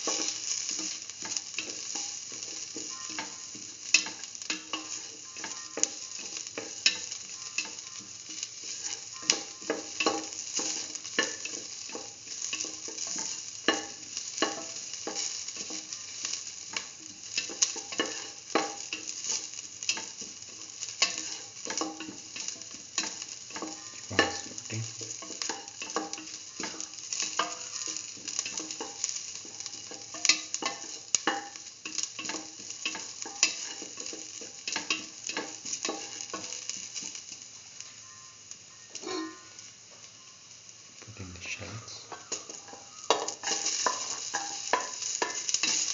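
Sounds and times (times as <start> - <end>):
onions sizzling in oil: 0.0 - 45.9
spatula scraping a metal pan: 39.0 - 39.5.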